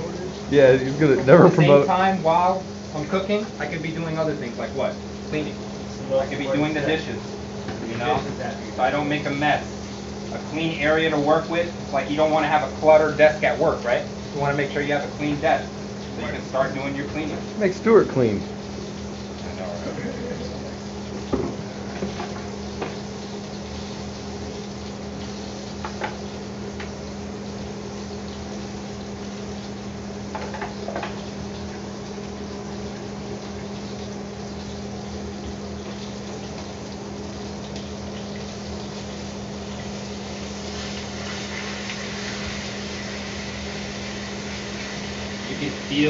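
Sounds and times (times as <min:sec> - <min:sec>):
chicken sizzling in a pan: 0:00.0 - 0:46.0
range hood fan humming: 0:00.0 - 0:46.0.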